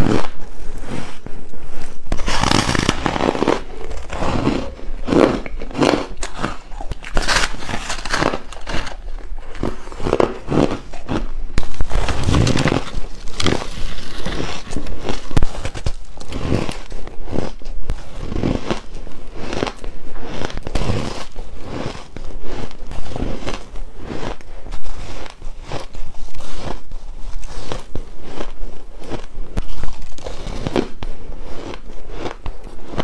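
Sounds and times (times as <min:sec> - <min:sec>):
crunching bites of ice: 0:02.1 - 0:23.7.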